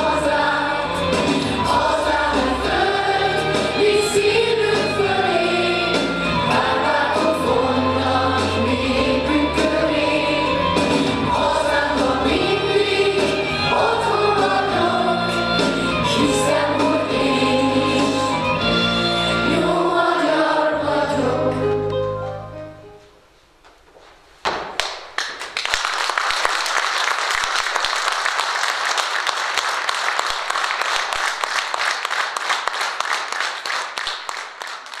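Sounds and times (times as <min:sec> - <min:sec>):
choir singing with accompaniment: 0:00.0 - 0:21.9
audience applause: 0:24.8 - 0:35.0.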